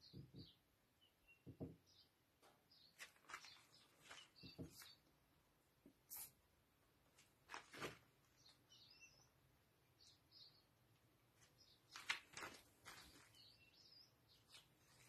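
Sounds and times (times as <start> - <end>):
high bird chirps: 0.0 - 2.1, 2.7 - 5.1, 8.4 - 9.3
faint knocks and scrapes: 2.4 - 5.0.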